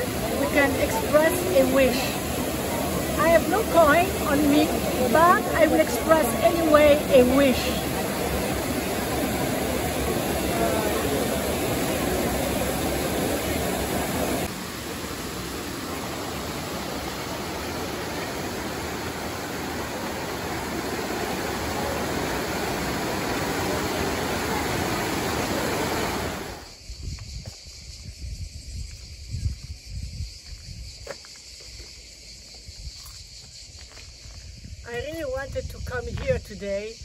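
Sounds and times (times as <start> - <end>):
fountain water rushing into pool: 0.0 - 26.7
open-air ambience: 0.0 - 37.0
wind rumble on microphone: 24.3 - 31.1, 32.6 - 37.0.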